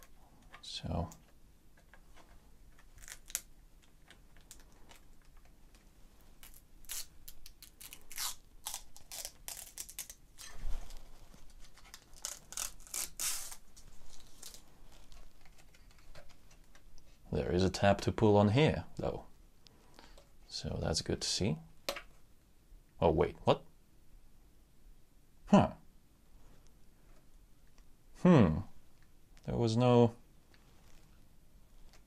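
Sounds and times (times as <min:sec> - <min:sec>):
fingernails scratching plastic film: 0:11.6 - 0:16.7.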